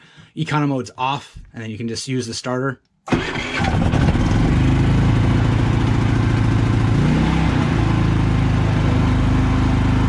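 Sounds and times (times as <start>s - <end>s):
generator engine running: 3.1s - 10.0s.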